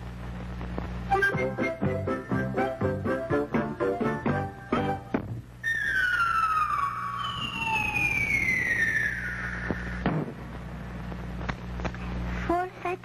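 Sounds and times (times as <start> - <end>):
steady low hum: 0.0 - 13.0
falling cartoon whistle: 5.6 - 10.1.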